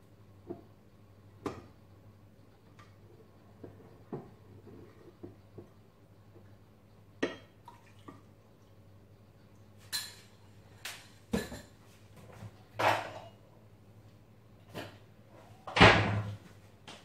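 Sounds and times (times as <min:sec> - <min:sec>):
dishes and utensils clinking: 0:09.8 - 0:10.4, 0:12.8 - 0:13.4.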